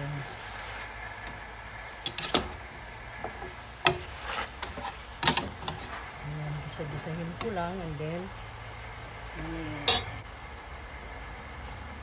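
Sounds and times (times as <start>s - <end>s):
metal spoon clacking in pot: 4.6s - 5.8s, 9.9s - 10.1s.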